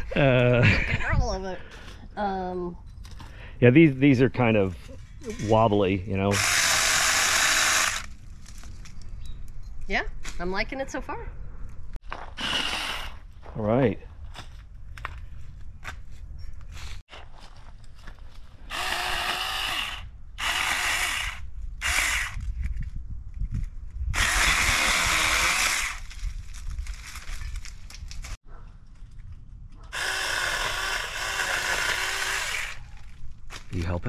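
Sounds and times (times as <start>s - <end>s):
electric chainsaw cutting branches: 6.3s - 8.2s, 12.4s - 13.2s, 18.7s - 22.4s, 24.1s - 26.2s, 29.9s - 32.8s.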